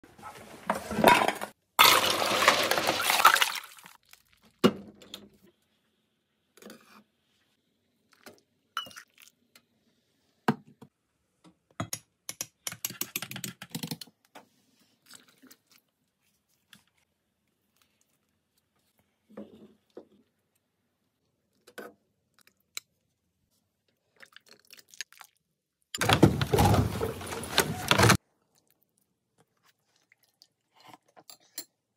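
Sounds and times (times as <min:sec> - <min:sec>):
metal pot and dishes clattering: 0:00.8 - 0:02.1.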